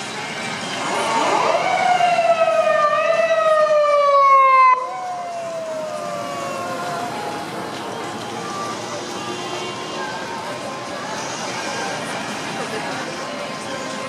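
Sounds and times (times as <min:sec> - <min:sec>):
police siren wailing: 0:00.6 - 0:09.2.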